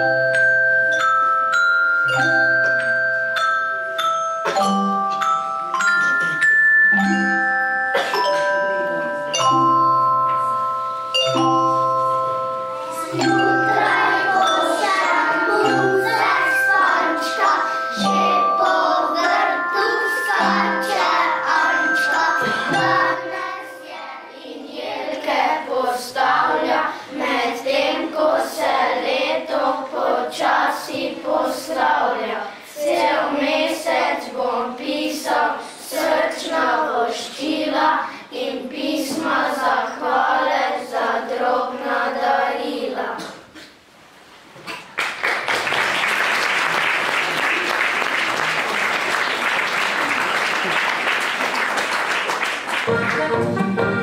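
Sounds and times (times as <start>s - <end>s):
tuned mallet percussion: 0.0s - 24.2s
children's choir singing: 4.4s - 43.6s.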